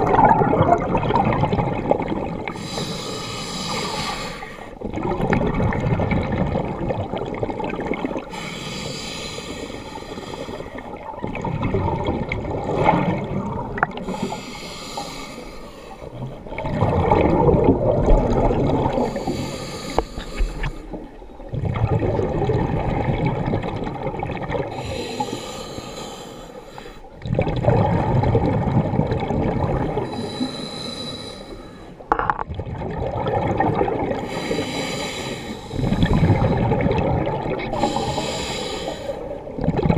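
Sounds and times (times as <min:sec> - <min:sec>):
bubbling exhalations: 0:00.0 - 0:02.8, 0:16.2 - 0:19.4, 0:27.2 - 0:30.5, 0:32.1 - 0:39.9
diver inhaling through regulator: 0:02.5 - 0:04.8, 0:08.3 - 0:10.9, 0:14.0 - 0:16.1, 0:18.9 - 0:21.0, 0:24.7 - 0:27.1, 0:30.0 - 0:32.0, 0:34.2 - 0:36.9, 0:37.6 - 0:39.4.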